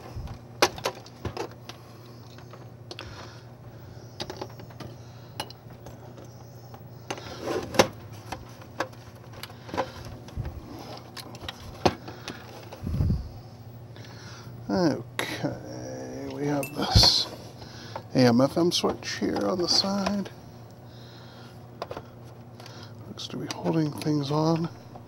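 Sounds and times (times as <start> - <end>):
steady low hum: 0.0 - 25.0
clicks of handling plastic knobs: 18.7 - 20.4.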